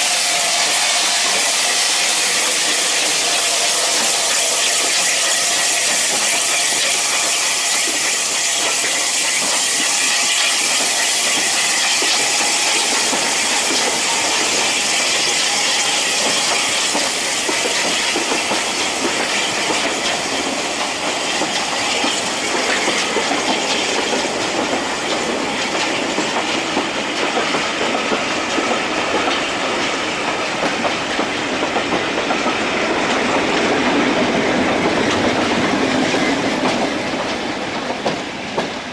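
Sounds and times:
steam locomotive hissing: 0.0s - 38.9s
train wheels clickety-clack: 0.0s - 38.9s.

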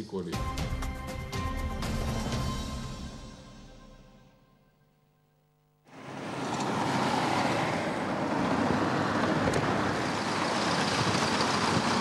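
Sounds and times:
road traffic noise: 5.8s - 12.0s.

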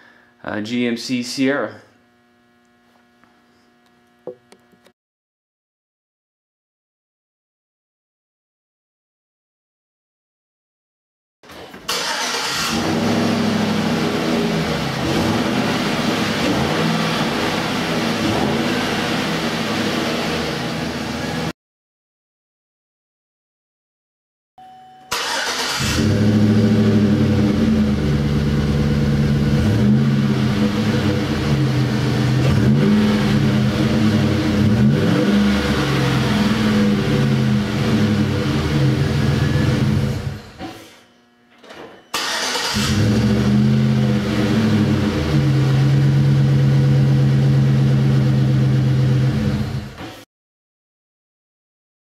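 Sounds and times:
pickup engine revving: 12.0s - 21.5s, 25.2s - 40.4s, 42.3s - 49.9s.

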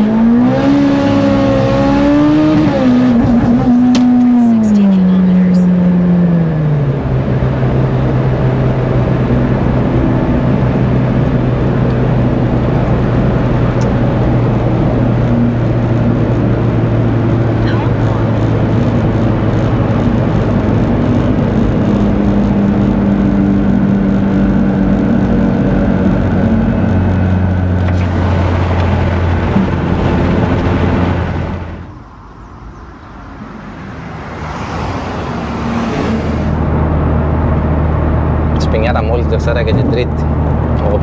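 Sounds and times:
in-cabin engine drone: 0.0s - 41.0s
road noise: 0.0s - 41.0s.

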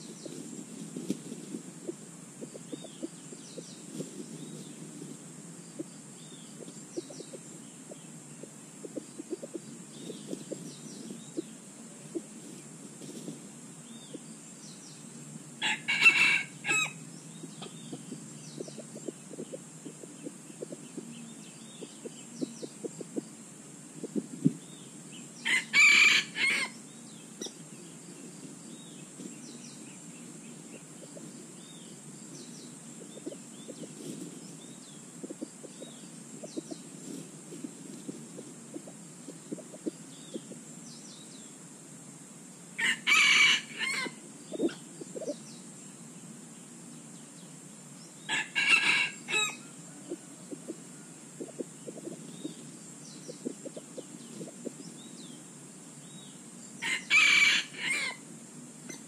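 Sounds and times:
high insect drone: 0.0s - 59.0s
faint bird chirps: 1.8s - 23.4s, 24.0s - 41.6s, 42.8s - 58.2s
rooster crowing: 15.6s - 17.0s, 25.4s - 26.8s, 42.8s - 44.2s, 48.3s - 50.4s, 56.8s - 58.2s.

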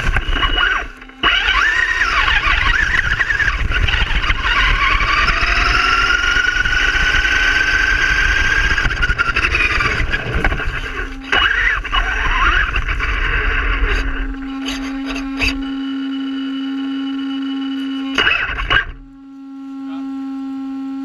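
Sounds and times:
tyres rumbling: 0.0s - 16.0s
electric motor whining: 0.0s - 21.0s
wind: 0.0s - 21.0s.

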